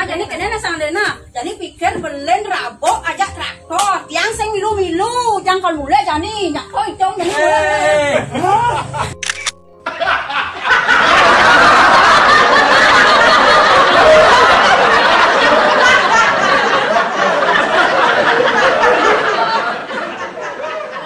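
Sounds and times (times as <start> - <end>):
people laughing together: 7.2 - 9.2, 9.8 - 21.0.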